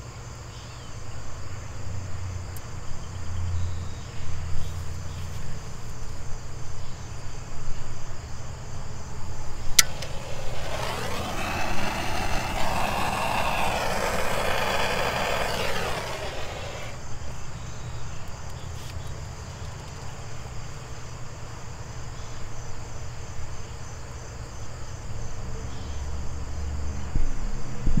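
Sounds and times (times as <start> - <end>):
constant low hum: 9.4 - 17.0
torch flame hissing: 9.6 - 17.0
sharp click: 9.8 - 16.1.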